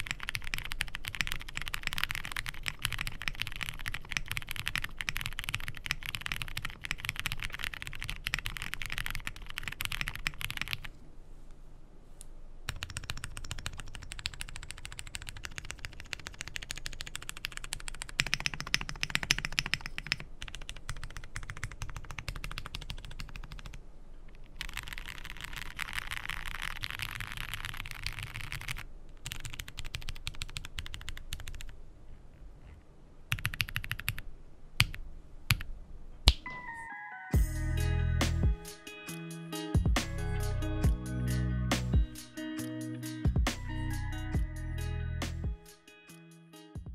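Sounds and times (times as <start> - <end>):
mechanical keyboard typing: 0.0 - 10.9, 12.7 - 23.8, 24.6 - 31.8, 33.3 - 34.2, 34.8 - 35.7.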